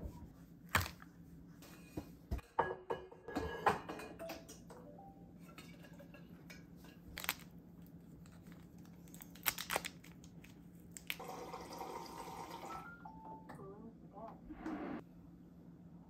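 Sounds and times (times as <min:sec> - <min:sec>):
low steady hum: 0:12.6 - 0:16.0.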